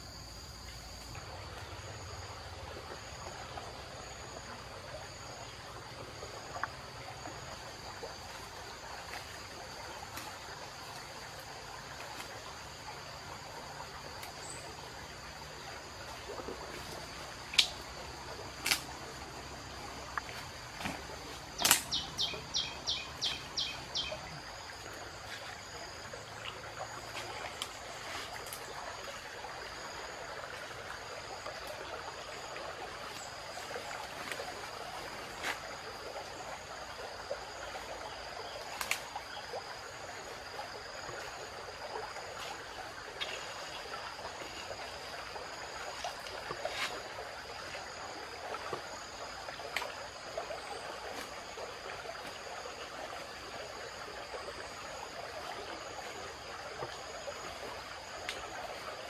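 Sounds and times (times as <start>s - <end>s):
high insect drone: 0.0s - 59.0s
twigs snapping and leaves rustling: 18.6s - 18.9s, 20.2s - 22.2s, 38.8s - 39.1s.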